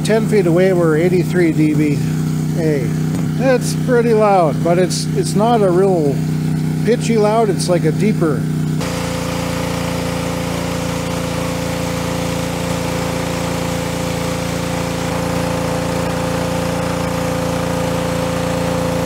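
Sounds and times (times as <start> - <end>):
pressure washer engine running: 0.0 - 19.0
water jet hissing on tiles: 8.8 - 19.0.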